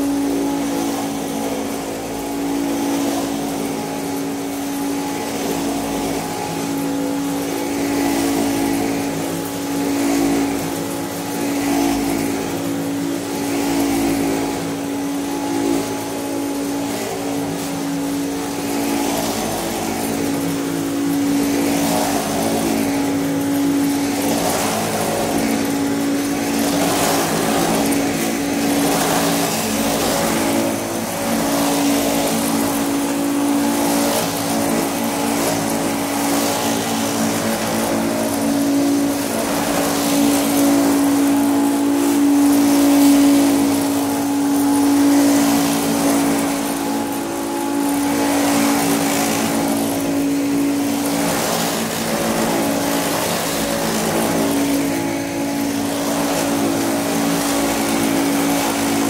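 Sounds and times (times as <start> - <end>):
vacuum cleaner running: 0.0 - 59.0.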